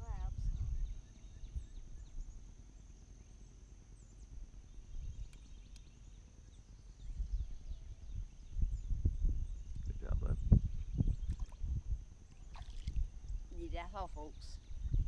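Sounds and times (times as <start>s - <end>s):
faint bird chirps: 0.0s - 15.0s.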